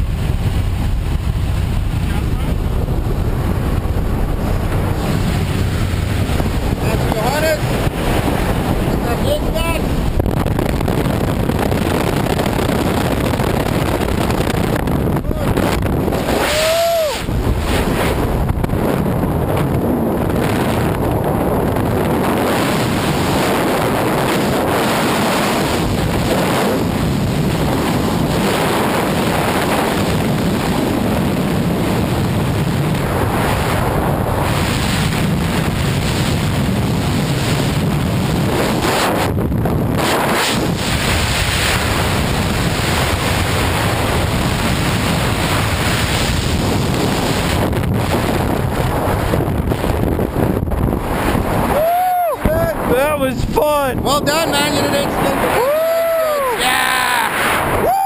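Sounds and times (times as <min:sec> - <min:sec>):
freefall wind on microphone: 0:00.0 - 0:58.0.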